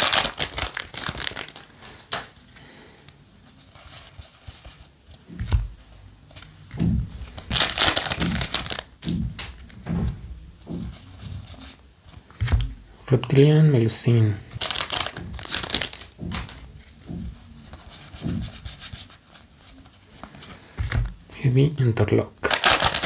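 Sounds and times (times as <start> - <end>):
foil wrapper crinkling: 0.0 - 2.4, 7.4 - 9.0, 14.6 - 16.5, 22.4 - 23.0
trading cards rustling: 0.0 - 2.5, 3.5 - 9.8, 14.5 - 21.2, 22.4 - 23.0.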